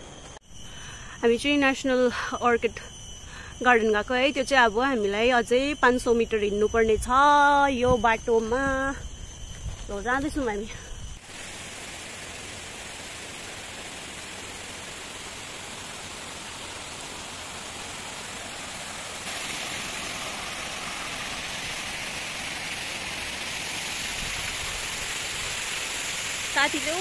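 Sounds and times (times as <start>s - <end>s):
waterfall cascading over rocks: 11.3s - 27.0s.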